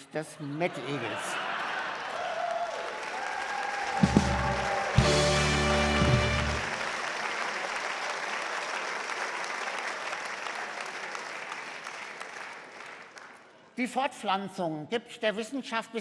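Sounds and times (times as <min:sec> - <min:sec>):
audience applause: 0:01.0 - 0:13.5
band music: 0:04.0 - 0:06.8.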